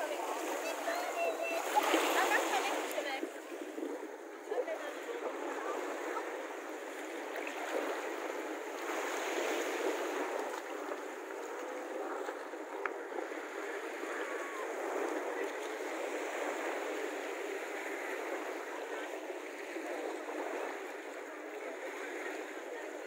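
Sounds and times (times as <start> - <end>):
small waves lapping: 0.0 - 23.0.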